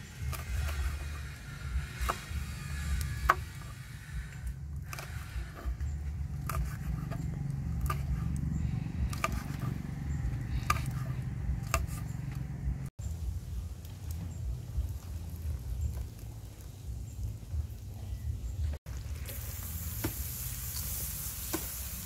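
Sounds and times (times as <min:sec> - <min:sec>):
low rumble: 0:00.0 - 0:20.0.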